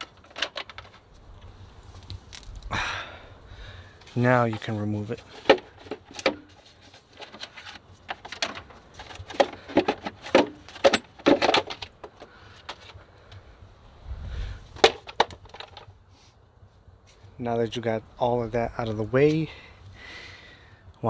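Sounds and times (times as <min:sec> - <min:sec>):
plastic air filter box clattering: 0:04.4 - 0:13.0.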